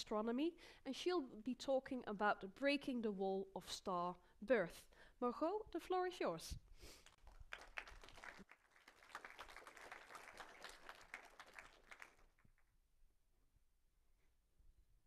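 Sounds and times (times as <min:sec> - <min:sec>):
audience applauding: 0:07.0 - 0:12.6.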